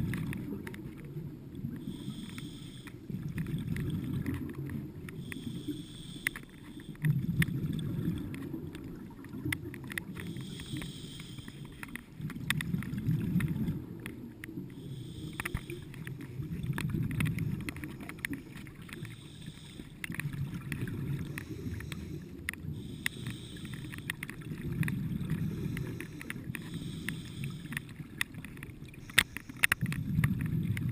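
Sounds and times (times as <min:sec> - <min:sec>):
bubbling rumble of exhaled air: 0:00.0 - 0:30.9
faint clicks: 0:00.0 - 0:30.9
regulator hiss on inhalation: 0:01.8 - 0:03.1, 0:05.2 - 0:07.0, 0:10.2 - 0:12.0, 0:14.8 - 0:16.1, 0:17.4 - 0:20.1, 0:21.2 - 0:24.2, 0:25.3 - 0:27.9.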